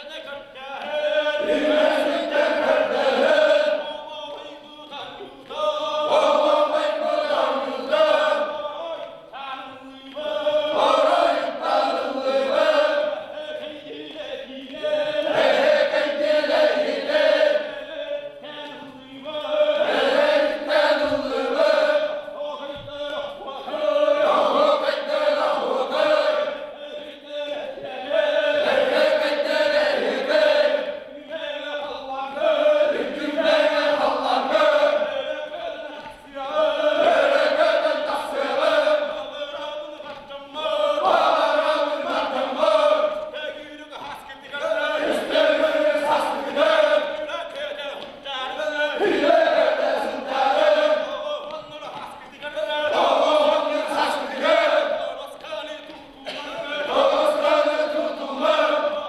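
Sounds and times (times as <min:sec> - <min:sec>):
men singing a chant together: 0:00.0 - 0:59.0.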